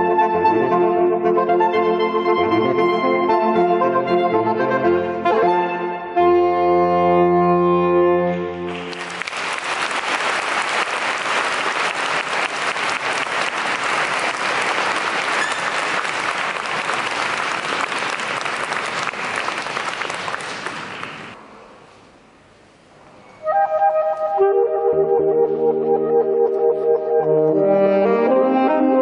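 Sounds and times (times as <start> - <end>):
audience applause: 8.7 - 21.4
saxophone quartet chord: 23.4 - 29.0.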